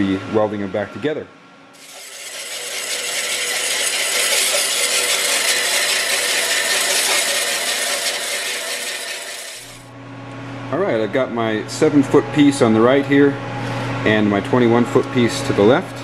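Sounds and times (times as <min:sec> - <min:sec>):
bandsaw cutting steel pipe: 0:01.8 - 0:09.9.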